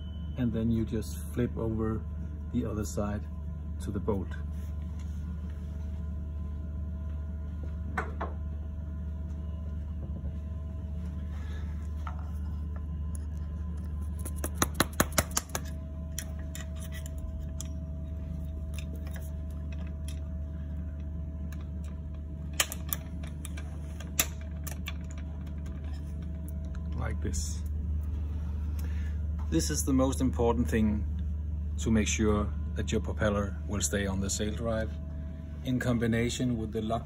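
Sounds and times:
hand tool tapping metal: 14.2s - 17.7s.

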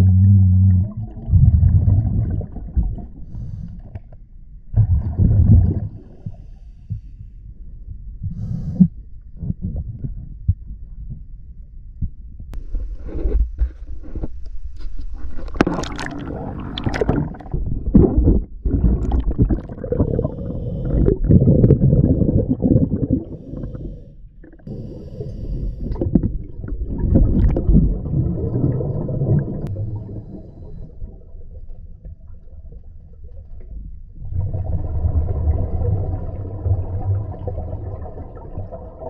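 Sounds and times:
gurgling exhaled bubbles: 0.0s - 3.6s, 4.7s - 6.5s, 15.4s - 31.6s, 34.2s - 39.0s
scuba diver breathing underwater: 3.2s - 4.0s, 5.3s - 7.4s, 8.3s - 8.9s, 18.2s - 26.4s, 28.9s - 31.2s.

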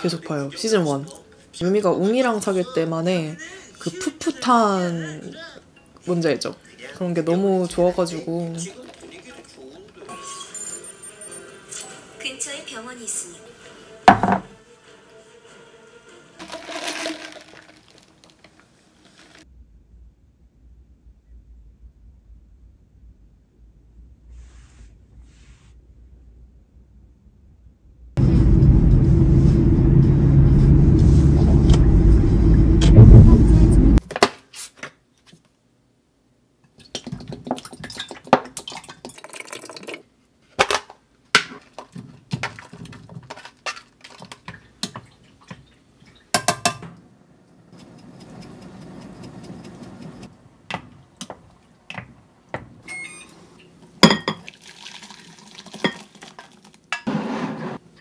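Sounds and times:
soup pouring into bowl: 8.5s - 9.6s, 16.4s - 19.4s, 38.6s - 40.0s, 54.3s - 56.9s
plastic container clinking: 16.4s - 19.4s
vehicle rumble from inside: 28.2s - 34.0s.

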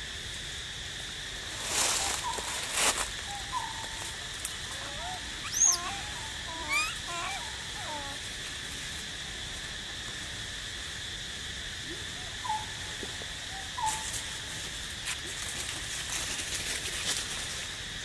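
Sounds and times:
insects droning: 0.0s - 18.0s.

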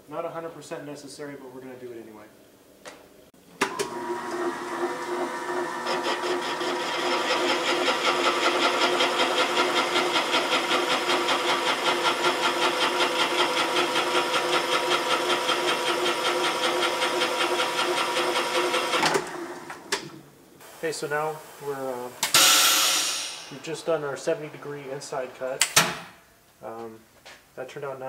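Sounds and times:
cutter machine hum pulsing: 3.9s - 19.0s.

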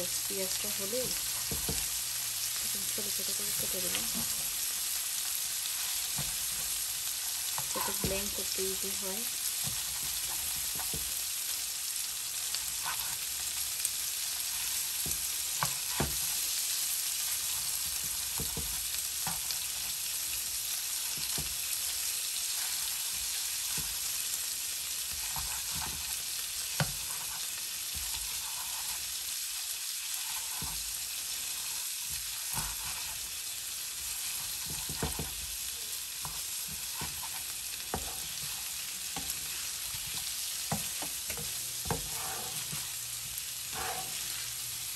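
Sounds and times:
food sizzling in a frying pan: 0.0s - 44.9s
spatula scraping a pan: 2.9s - 11.2s, 12.4s - 13.4s, 14.2s - 24.3s, 24.9s - 44.7s.

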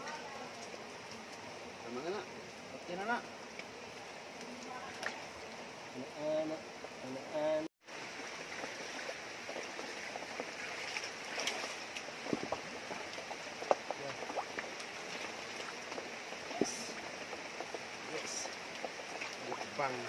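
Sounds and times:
light knocks and splashes: 8.5s - 17.8s.

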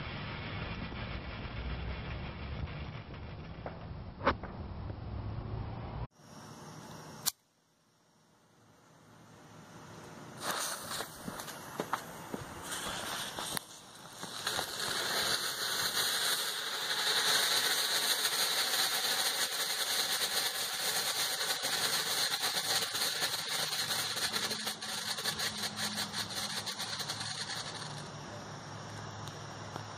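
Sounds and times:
ground firework hissing: 0.0s - 4.2s, 10.2s - 29.9s
rapid crackling clicks: 12.8s - 28.1s.

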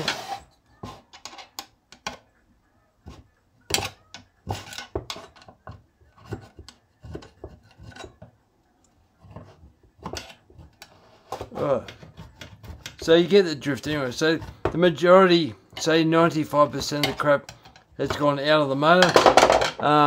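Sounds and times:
screwdriver scraping metal: 0.0s - 2.2s, 3.7s - 8.3s.

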